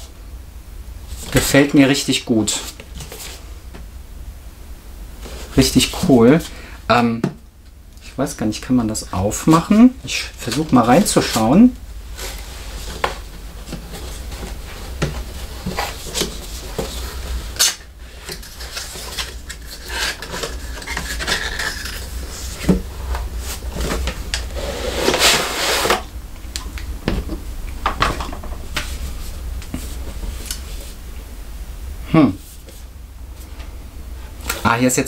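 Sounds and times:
plastic rustling: 0:09.3 - 0:26.1.

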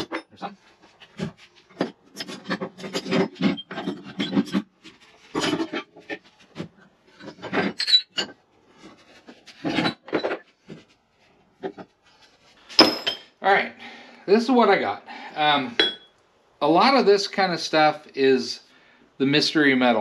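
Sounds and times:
metal clink: 0:12.8 - 0:13.4, 0:15.8 - 0:16.2.

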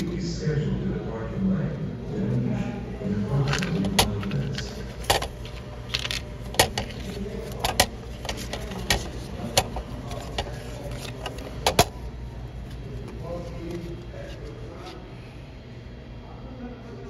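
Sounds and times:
low steady hum: 0:00.0 - 0:17.0
paper tickets clicking in tray: 0:03.2 - 0:12.0.

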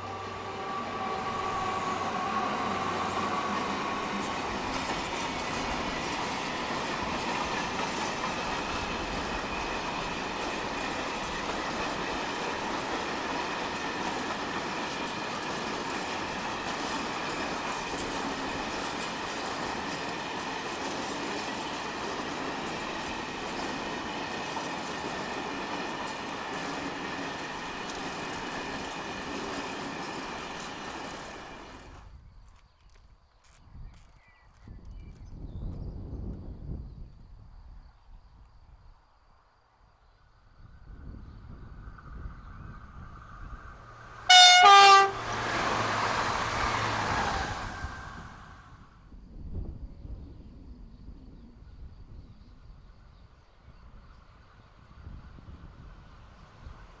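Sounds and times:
diesel locomotive engine: 0:00.0 - 0:32.2, 0:40.9 - 0:49.1.

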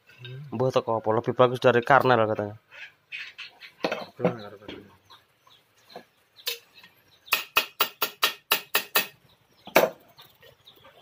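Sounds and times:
hammer striking metal on anvil: 0:07.3 - 0:09.2.

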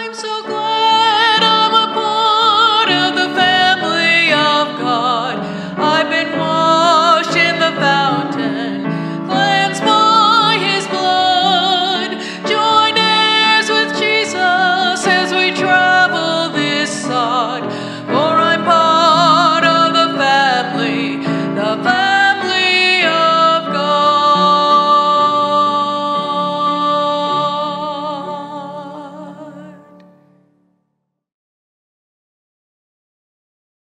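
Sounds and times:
woman singing with vibrato: 0:00.0 - 0:30.0
grand piano: 0:00.0 - 0:30.5.

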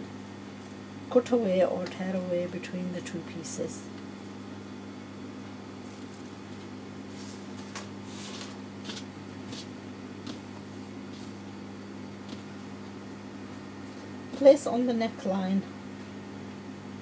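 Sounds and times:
cloth rustling: 0:05.8 - 0:11.4.

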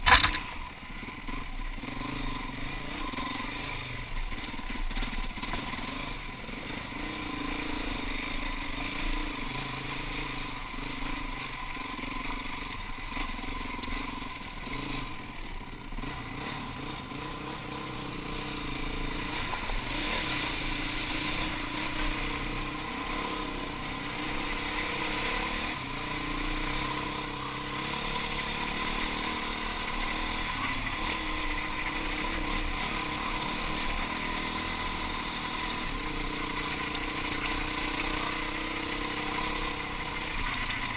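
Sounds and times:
dirt bike engine revving: 0:00.0 - 0:40.9
bike splashing through water: 0:16.0 - 0:40.9.

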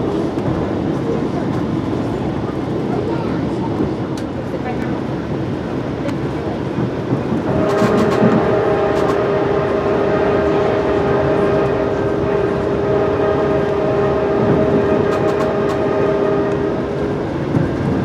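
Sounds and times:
train rumbling on rails: 0:00.0 - 0:18.0
locomotive air horn chord: 0:07.5 - 0:17.1.

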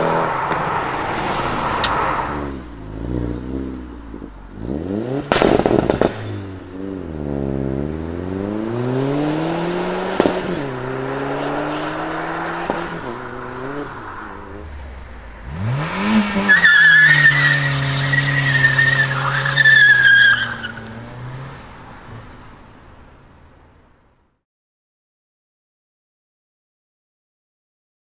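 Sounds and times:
car engine revving: 0:00.0 - 0:24.4
tyre squealing: 0:16.0 - 0:22.9.

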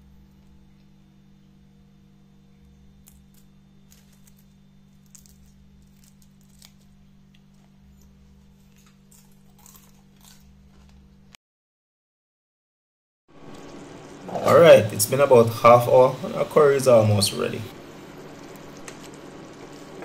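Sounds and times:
low hum: 0:00.0 - 0:11.4, 0:13.3 - 0:20.0
coconut flakes crackling: 0:02.6 - 0:11.1, 0:13.4 - 0:20.0.

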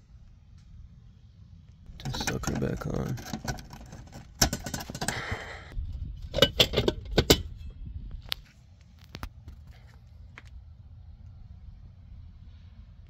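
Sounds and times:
metal switch box clicks and clatter: 0:02.0 - 0:05.2, 0:06.3 - 0:07.6.

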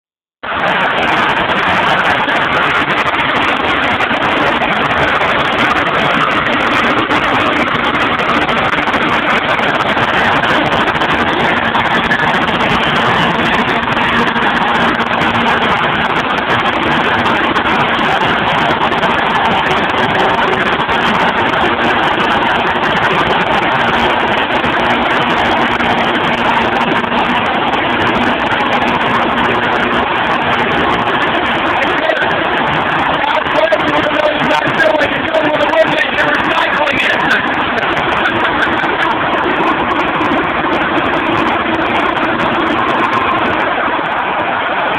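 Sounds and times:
engine note: 0:00.4 - 0:44.9
sawmill machine running: 0:00.4 - 0:44.9.

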